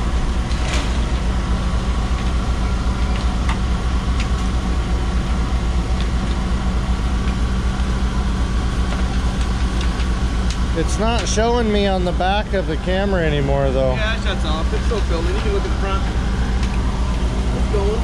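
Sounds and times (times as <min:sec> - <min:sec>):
boat engine humming: 0:00.0 - 0:18.0.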